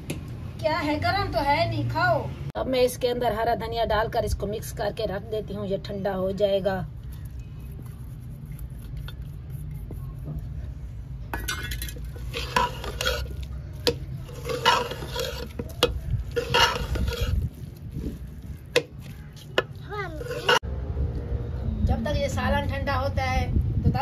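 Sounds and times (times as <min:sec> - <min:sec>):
spoon clinking against pot: 0:11.4 - 0:17.4
spoon scraping cooking pot: 0:11.4 - 0:20.6.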